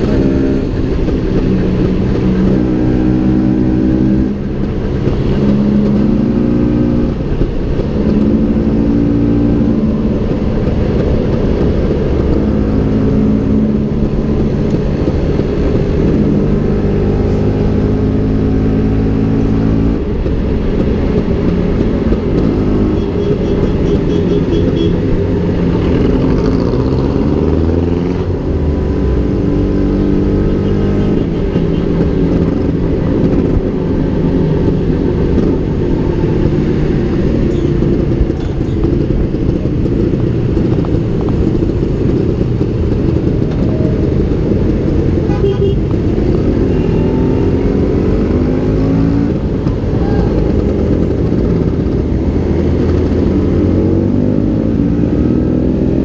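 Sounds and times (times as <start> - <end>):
wind rumble on microphone: 31.0 - 56.0.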